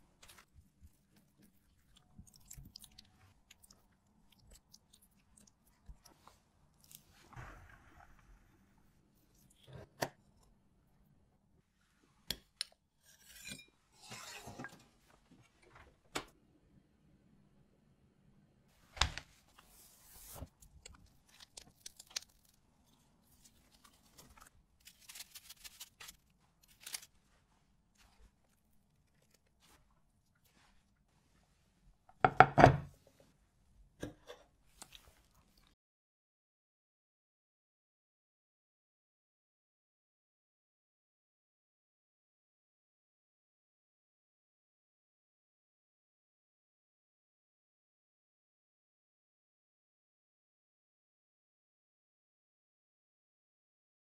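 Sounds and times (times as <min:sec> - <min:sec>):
crinkles and scrapes: 0:00.0 - 0:10.0, 0:13.0 - 0:15.9, 0:19.2 - 0:31.9, 0:34.0 - 0:35.8
spatula spreading jam: 0:00.0 - 0:10.5, 0:12.1 - 0:14.9, 0:19.5 - 0:31.9
wet squishes of piped cream: 0:00.1 - 0:07.4, 0:19.5 - 0:31.9, 0:34.7 - 0:35.8.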